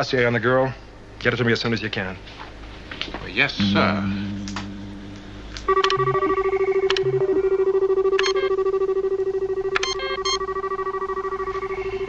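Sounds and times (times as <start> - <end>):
rapidly pulsing electronic tone: 3.6 - 12.0
short electronic bleeps: 5.7 - 8.6, 9.6 - 11.9.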